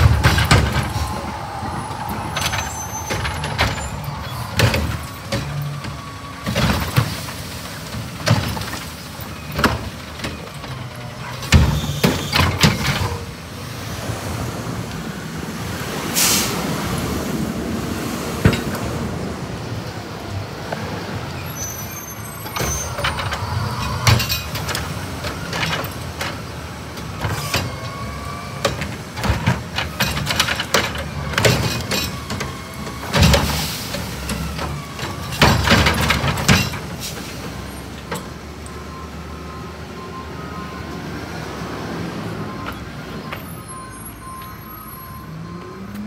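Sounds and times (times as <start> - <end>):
truck engine running: 0.0 - 11.1
plastic cart clattering and banging: 34.3 - 37.0.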